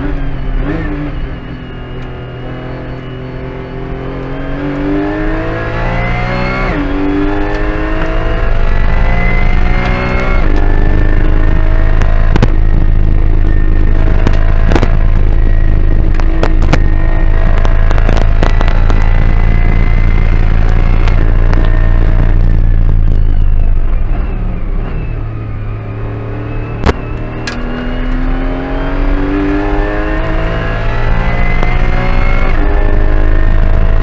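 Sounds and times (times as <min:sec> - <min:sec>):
race car engine revving: 0:00.0 - 0:34.0
heavy low drone: 0:06.8 - 0:34.0.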